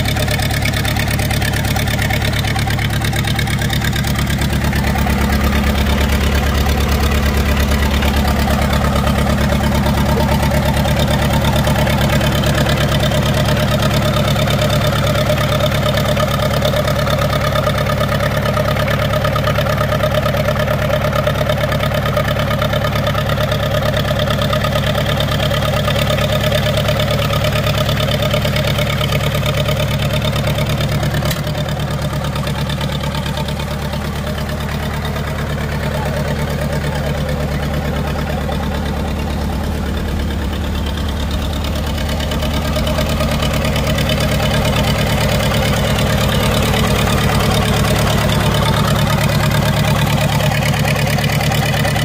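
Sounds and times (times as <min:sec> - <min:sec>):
diesel tractor engine idling: 0:00.0 - 0:52.0.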